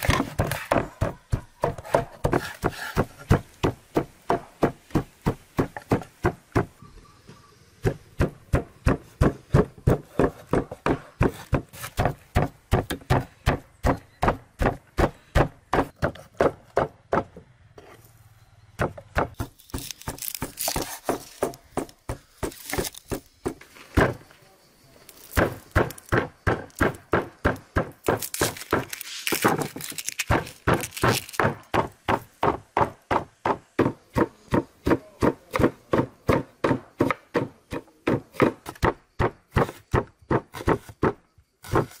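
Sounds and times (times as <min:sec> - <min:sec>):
knife chopping on wooden board: 0:00.0 - 0:06.7.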